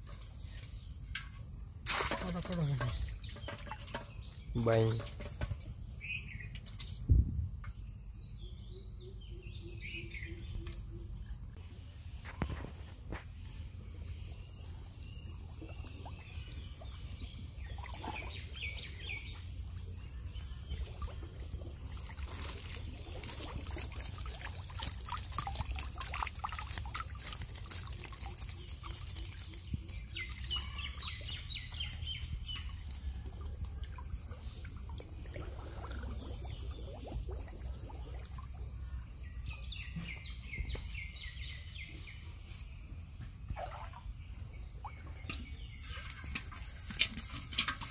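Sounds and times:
birds chirping: 0:00.0 - 0:07.0, 0:07.7 - 0:47.9
water splashing and running off: 0:01.8 - 0:05.6, 0:13.4 - 0:41.5, 0:45.1 - 0:47.9
small clicks and crackles: 0:22.2 - 0:31.9.

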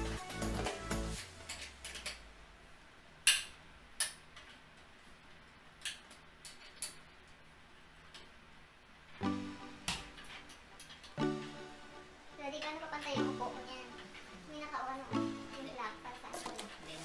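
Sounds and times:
chair parts clicking and knocking: 0:01.2 - 0:02.3, 0:05.7 - 0:07.4, 0:09.8 - 0:11.2.

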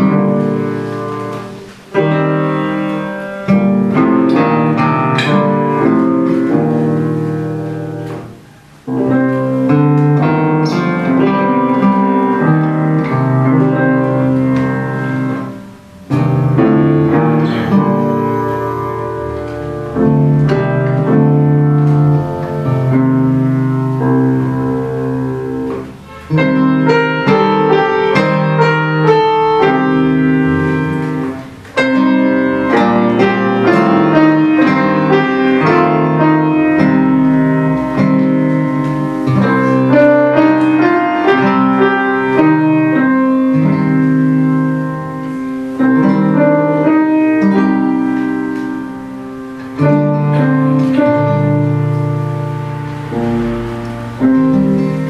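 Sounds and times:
classical guitar: 0:00.0 - 0:55.0
grand piano: 0:00.0 - 0:55.0.

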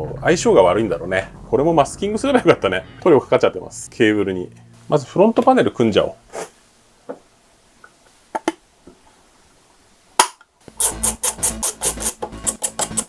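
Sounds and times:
background music with steady beat: 0:10.7 - 0:13.0.

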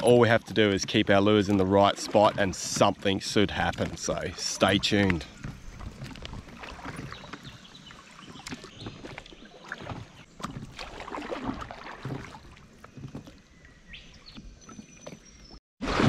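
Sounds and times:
water lapping against boat hull: 0:00.0 - 0:16.0
small knocks on hull: 0:08.3 - 0:13.4.

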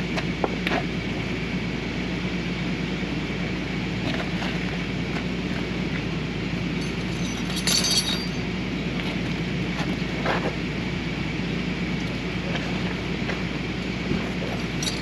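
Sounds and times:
truck engine idling: 0:00.0 - 0:15.0
metallic clink: 0:06.8 - 0:08.4, 0:14.8 - 0:15.0.

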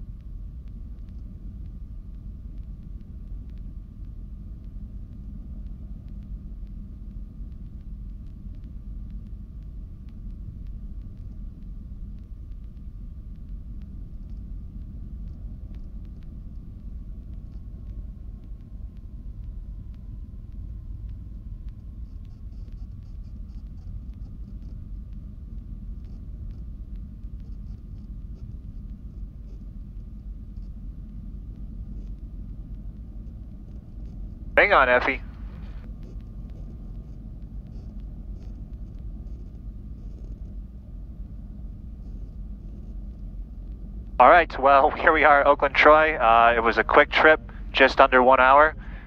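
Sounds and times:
faint steady whine: 0:00.0 - 0:49.0
aircraft engines idling: 0:34.6 - 0:35.8, 0:44.2 - 0:49.0.

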